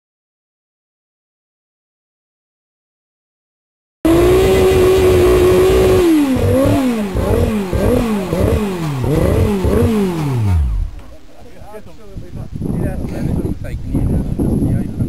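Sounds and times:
race car engine revving: 0:04.1 - 0:11.3.

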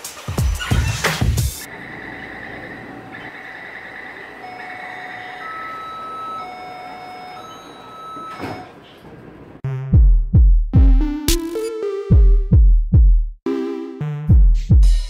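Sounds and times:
electronic door warning tones: 0:01.7 - 0:09.0
sliding doors closing thud: 0:08.1 - 0:09.4.

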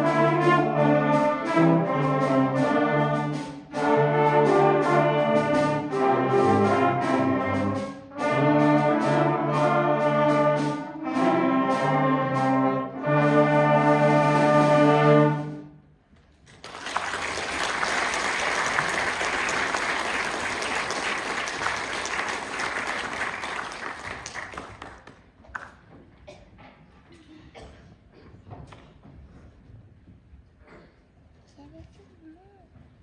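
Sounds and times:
wind band playing chords: 0:00.0 - 0:15.8
audience applauding: 0:16.5 - 0:25.8.

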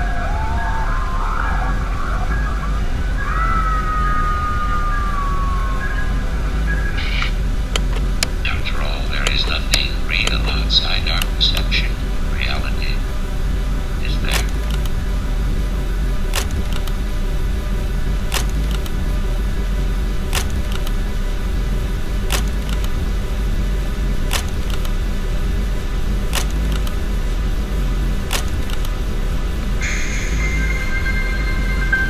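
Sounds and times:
low rumbling drone: 0:00.0 - 0:32.0
lamp switch clicking: 0:16.3 - 0:17.0, 0:18.3 - 0:18.9, 0:20.3 - 0:21.0, 0:22.3 - 0:22.9, 0:24.3 - 0:25.0, 0:26.3 - 0:27.0, 0:28.3 - 0:28.9
high steady tone: 0:25.3 - 0:32.0.

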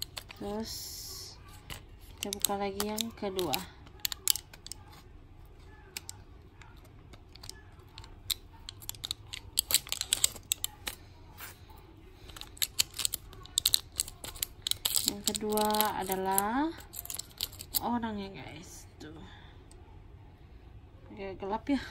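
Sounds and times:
blister pack crackling: 0:00.0 - 0:05.1, 0:05.8 - 0:11.0, 0:12.2 - 0:17.8.

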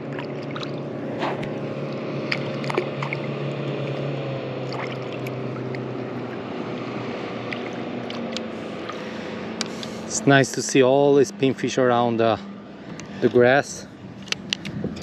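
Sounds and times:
water lapping and splashing: 0:00.0 - 0:10.8
steady low hum: 0:00.0 - 0:15.0.

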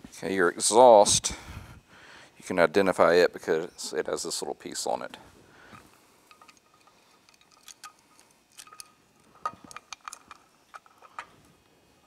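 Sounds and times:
light metallic clicks and clinks: 0:05.8 - 0:11.4.

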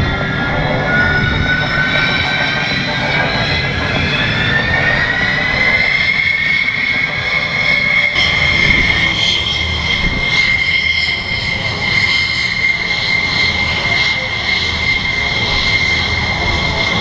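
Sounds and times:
jet engines whining: 0:00.0 - 0:17.0
low rumble: 0:08.0 - 0:11.9.

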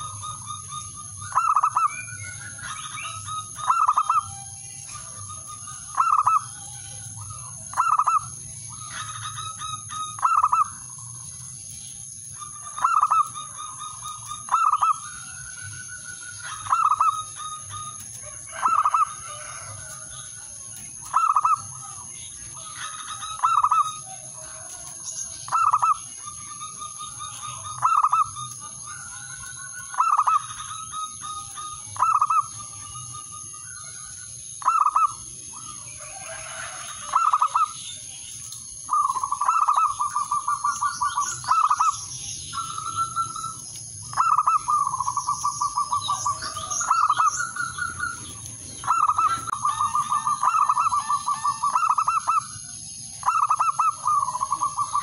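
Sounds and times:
dove cooing: 0:00.0 - 0:11.3, 0:12.3 - 0:37.8, 0:38.4 - 0:55.0.

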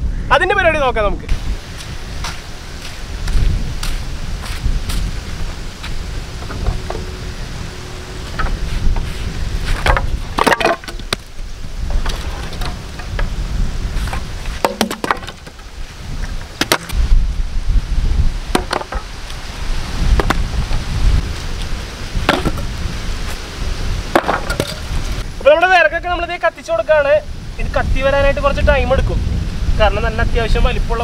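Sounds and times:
wooden planks clattering: 0:05.5 - 0:07.2, 0:07.8 - 0:13.4, 0:14.0 - 0:17.0, 0:18.5 - 0:19.2, 0:22.2 - 0:22.7, 0:24.1 - 0:25.2.

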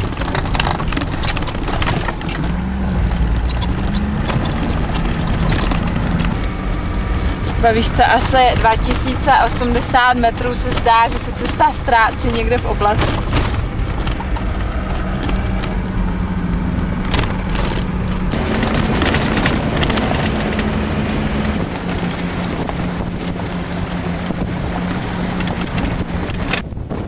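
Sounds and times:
scattered knocks: 0:00.0 - 0:20.8
tyres on gravel track: 0:00.0 - 0:27.0
vehicle engine running: 0:00.0 - 0:27.0
wind noise: 0:00.0 - 0:27.0.

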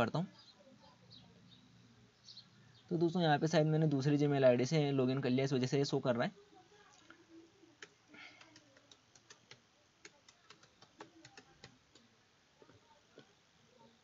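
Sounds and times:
keyboard keystrokes: 0:07.8 - 0:12.0.

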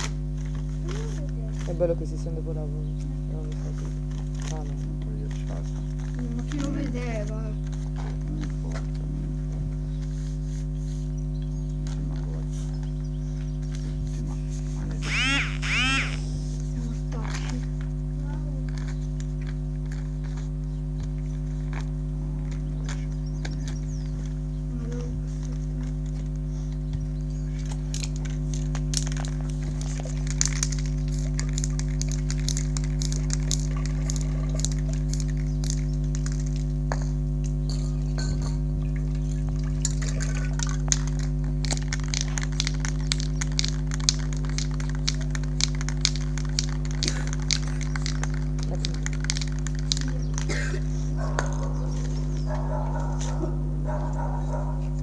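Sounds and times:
steady low hum: 0:00.0 - 0:55.0
spray paint can bursts: 0:15.0 - 0:16.4, 0:28.0 - 0:36.7, 0:39.9 - 0:51.1.

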